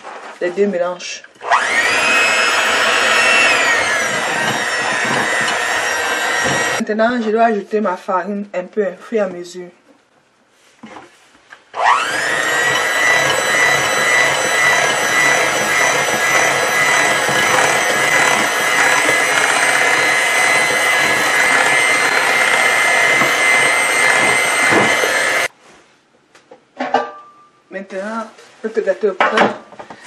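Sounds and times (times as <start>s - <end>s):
beaters mixing batter: 1.4s - 6.8s, 11.8s - 25.5s
electric hand mixer whirring: 1.4s - 6.8s, 11.8s - 25.5s.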